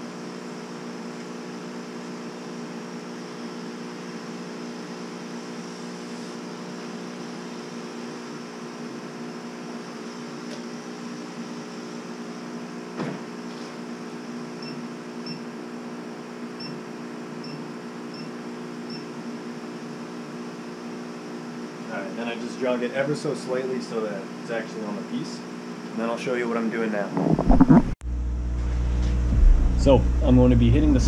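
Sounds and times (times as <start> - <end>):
laser cutter hum: 27.6 - 31.0.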